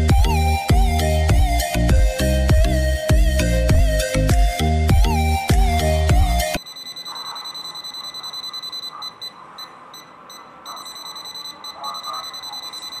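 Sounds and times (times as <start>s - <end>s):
background music: 0.0s - 6.6s
high-pitched buzzer beep: 6.6s - 13.0s.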